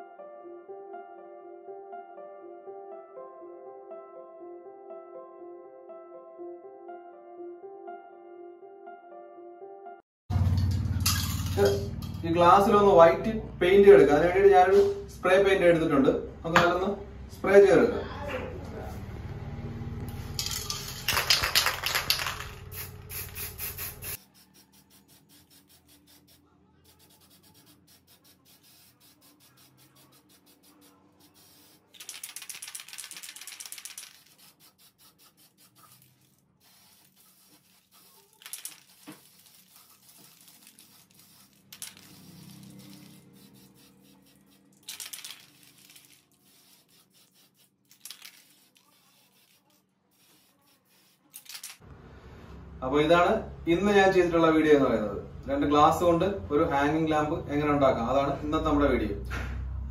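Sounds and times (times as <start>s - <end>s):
spray-paint can hissing: 20.4s - 51.8s.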